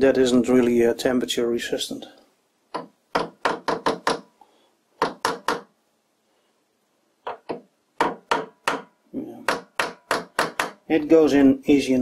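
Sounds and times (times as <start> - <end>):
hammer tapping on metal: 2.7 - 4.3, 5.0 - 5.7, 7.2 - 10.8.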